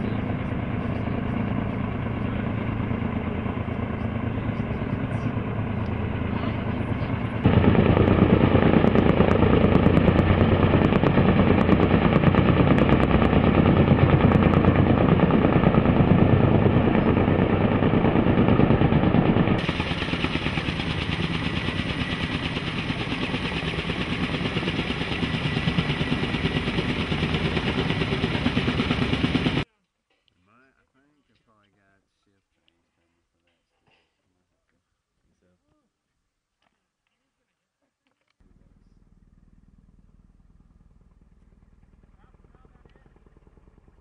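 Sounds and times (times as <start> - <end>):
helicopter rotors chopping: 0.0 - 29.6.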